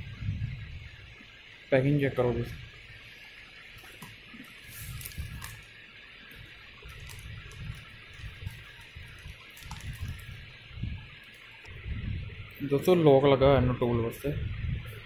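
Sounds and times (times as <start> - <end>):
steady background hiss: 0.0 - 15.0
plastic packaging crinkling: 3.8 - 10.6.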